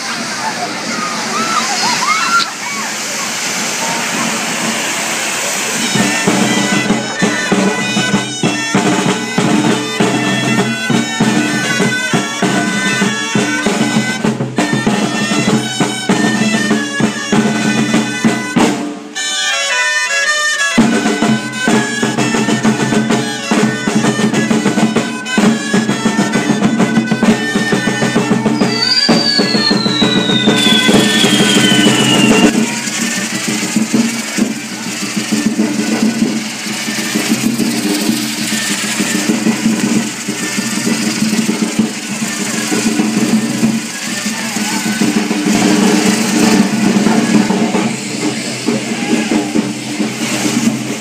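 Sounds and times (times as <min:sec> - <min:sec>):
drumming: 0:00.0 - 0:51.0
reed-pipe melody: 0:00.0 - 0:51.0
long falling whistle: 0:00.4 - 0:09.0, 0:27.2 - 0:34.6.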